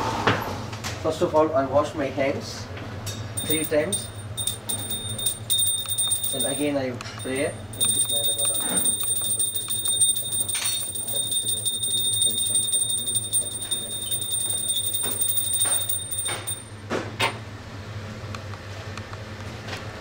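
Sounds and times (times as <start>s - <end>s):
small hand bell ringing: 3.4s - 16.8s.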